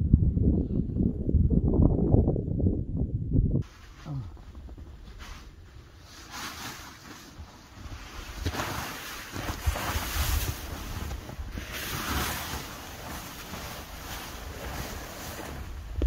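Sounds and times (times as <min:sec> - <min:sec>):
wind on microphone: 0:00.0 - 0:06.0, 0:07.8 - 0:16.0
tarp rustling and flapping: 0:03.6 - 0:16.0.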